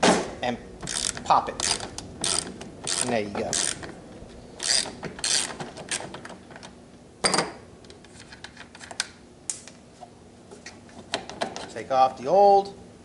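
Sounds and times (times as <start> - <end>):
socket ratchet clicking: 0.8 - 3.9, 4.6 - 6.2.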